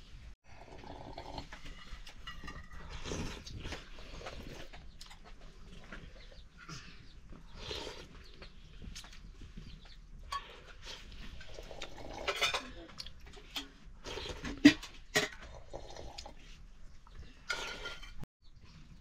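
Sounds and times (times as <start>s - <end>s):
metal dishes clinking: 1.6s - 3.0s, 11.3s - 13.8s, 17.4s - 18.2s.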